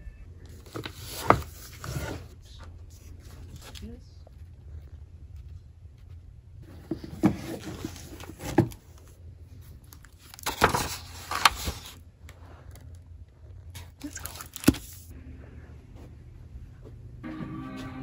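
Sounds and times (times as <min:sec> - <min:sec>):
books rustling and knocking: 0:00.5 - 0:02.3, 0:06.6 - 0:09.1, 0:10.2 - 0:12.0, 0:14.0 - 0:15.0.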